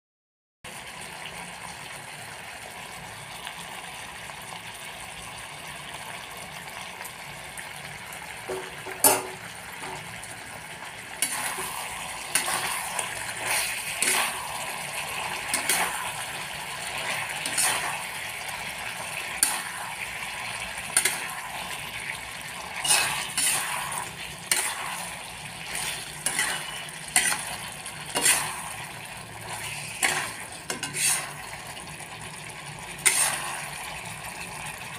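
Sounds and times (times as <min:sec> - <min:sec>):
curry sizzling in a pan: 0:00.7 - 0:34.9
spatula scraping a pan: 0:11.1 - 0:34.9.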